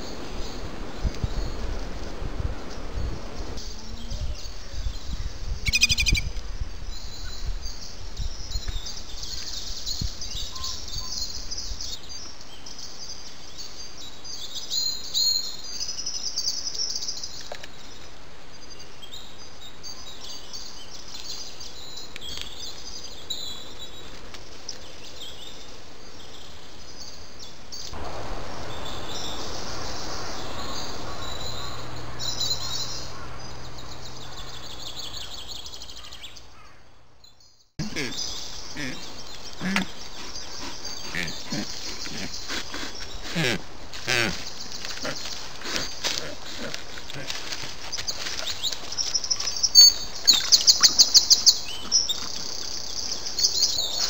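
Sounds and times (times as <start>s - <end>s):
microphone hiss: 0.0s - 7.8s, 27.5s - 35.4s
birds singing and chirping: 2.6s - 54.0s.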